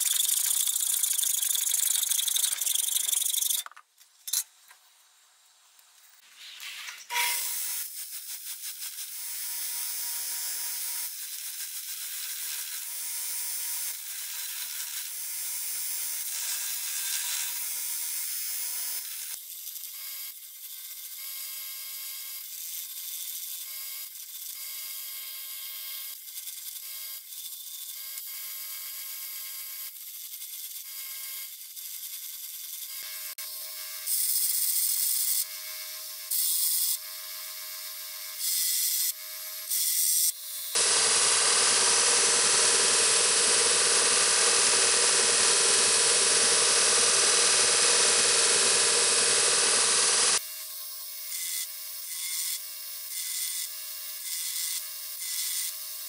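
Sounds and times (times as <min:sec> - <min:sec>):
power tool motor whine: 0:38.4 - 0:50.4.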